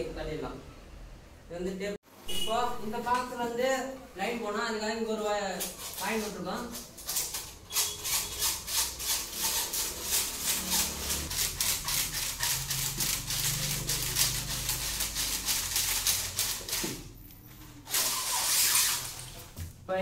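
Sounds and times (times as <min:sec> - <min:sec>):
wires rubbing: 0:05.5 - 0:17.2, 0:17.8 - 0:19.6.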